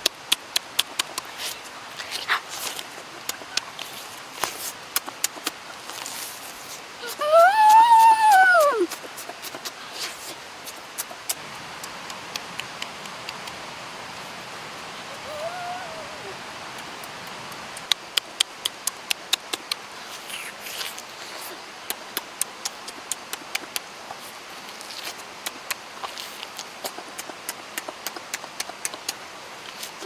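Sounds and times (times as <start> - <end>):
wet lip smacks: 0.0 - 5.6, 16.8 - 21.0, 21.9 - 23.9, 25.4 - 29.2
person chewing: 0.0 - 6.2
steady background hiss: 0.0 - 30.0.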